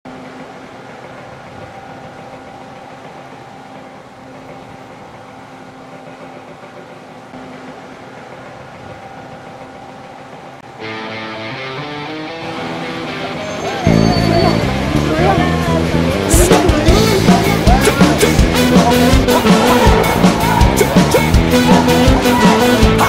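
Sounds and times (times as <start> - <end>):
engine running: 0.1 - 23.0
street traffic noise: 0.1 - 23.0.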